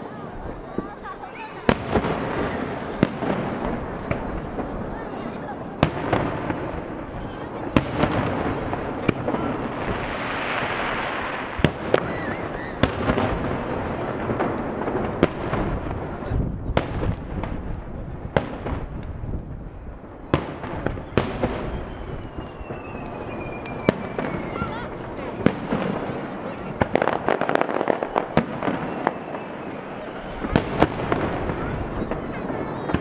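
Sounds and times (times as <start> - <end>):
firework shells bursting: 20.1 - 33.0.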